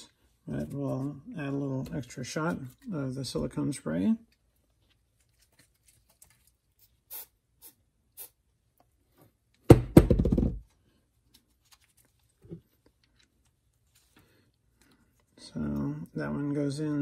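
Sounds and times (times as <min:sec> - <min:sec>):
aerosol spray hissing: 0:07.1 - 0:08.4
knock on workbench: 0:09.7 - 0:10.6.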